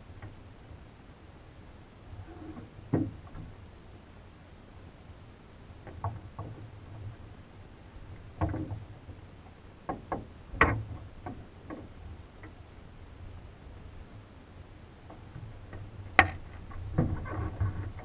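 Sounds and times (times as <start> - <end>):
knocks and thumps in cockpit: 8.4 - 8.9.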